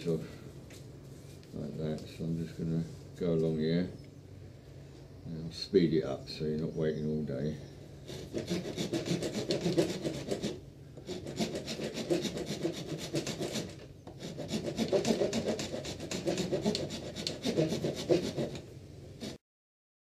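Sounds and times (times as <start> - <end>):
wood rasp scraping wood: 8.1 - 18.6, 19.2 - 19.4.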